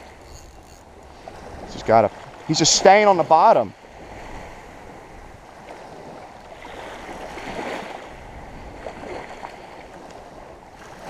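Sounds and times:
water sloshing in shallow surf: 0.0 - 11.0.

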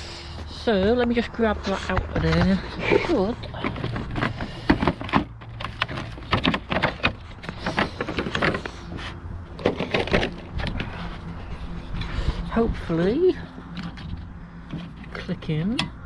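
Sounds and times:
plastic packaging clicking and crackling: 3.5 - 8.9, 9.5 - 10.9.

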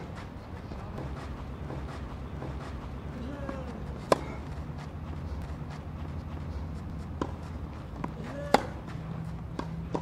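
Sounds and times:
steady low hum: 0.0 - 10.0
tennis racket hitting ball: 1.0 - 10.0.

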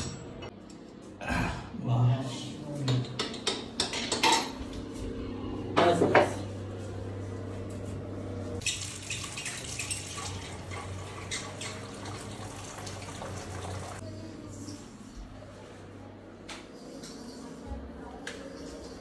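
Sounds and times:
low hum: 4.5 - 8.6
water running through a hose: 8.6 - 14.0.

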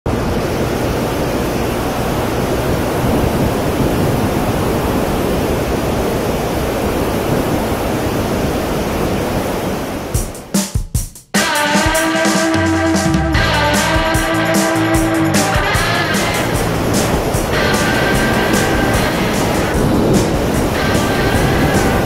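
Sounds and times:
wind buffeting microphone: 0.1 - 10.5, 13.4 - 22.0.

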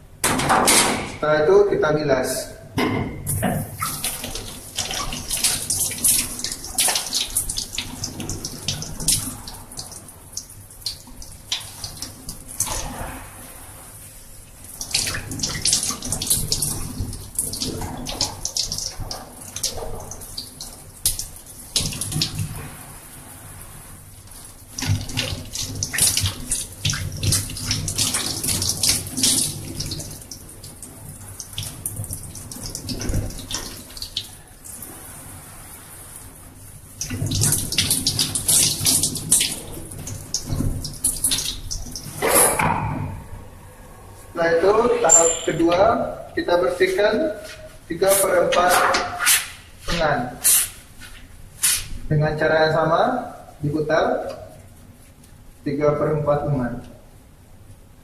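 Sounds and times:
tap water splashing into sink: 2.8 - 13.1, 14.8 - 22.7, 24.7 - 34.8, 37.0 - 43.2.

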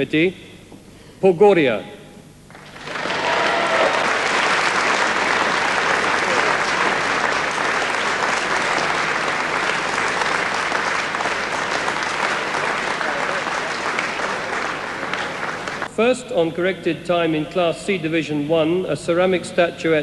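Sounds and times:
large audience applauding: 2.5 - 15.9.

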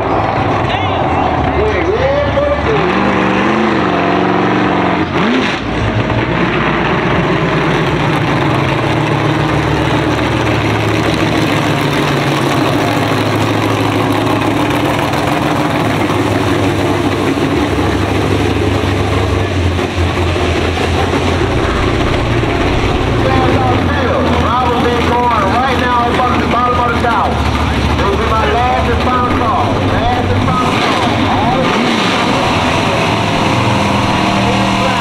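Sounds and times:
car engine idling: 0.0 - 3.6, 4.2 - 35.0.

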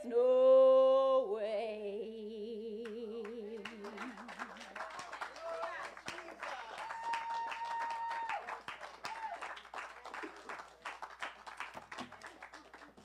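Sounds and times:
audience applauding: 3.2 - 13.0
high held cheer: 3.9 - 12.9.

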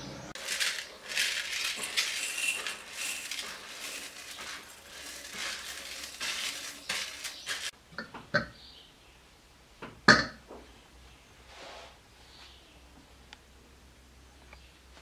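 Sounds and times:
rice grains pattering on glass: 0.4 - 7.8.

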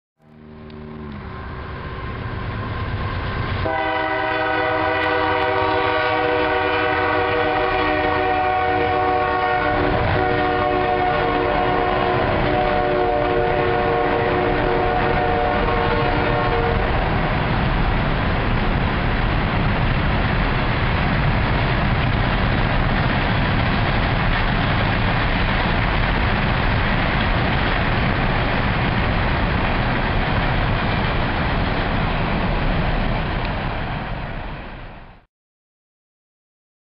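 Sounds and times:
locomotive air horn blast: 0.2 - 2.0, 3.6 - 17.2
train rolling past: 0.2 - 35.3.

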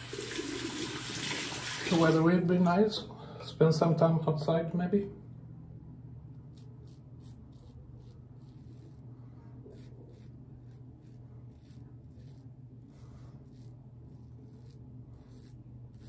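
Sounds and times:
steady low hum: 2.3 - 16.0
razor scraping stubble: 6.3 - 16.0.

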